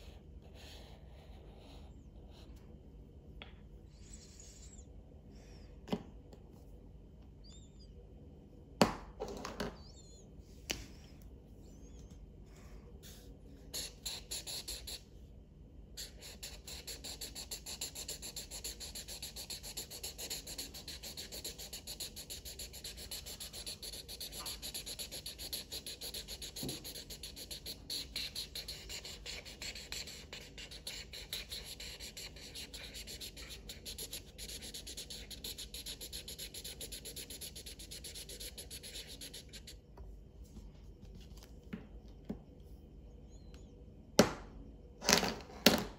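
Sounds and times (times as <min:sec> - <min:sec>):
marker scribbling on paper: 0:13.0 - 0:15.0, 0:16.0 - 0:39.8.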